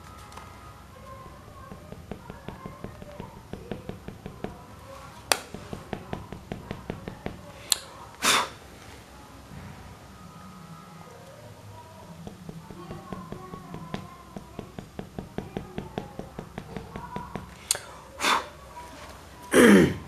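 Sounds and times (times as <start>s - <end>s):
pencil tapping and stroking on paper: 1.1s - 7.8s, 12.2s - 17.9s
pencil scraping on paper: 1.6s - 4.6s.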